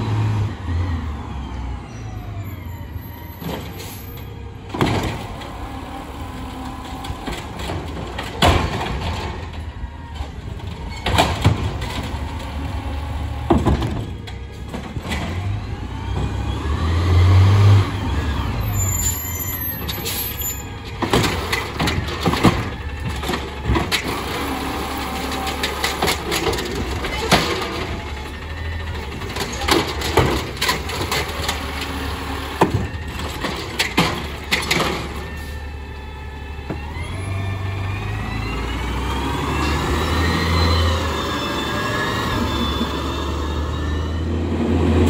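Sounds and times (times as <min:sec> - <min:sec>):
truck engine whine: 0:00.0 - 0:45.0
garbage truck idling: 0:00.5 - 0:16.6, 0:17.8 - 0:45.0
trash cart knocking and banging: 0:03.4 - 0:16.4, 0:19.7 - 0:35.4.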